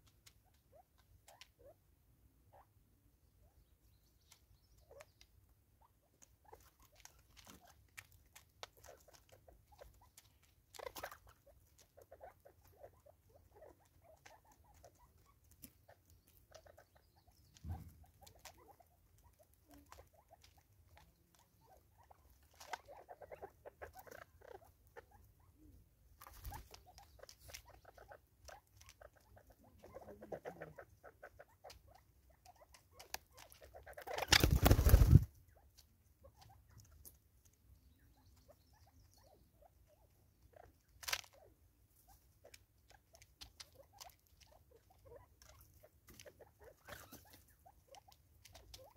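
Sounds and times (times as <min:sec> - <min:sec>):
bird wings flapping: 0:26.3 - 0:26.7, 0:34.0 - 0:35.3.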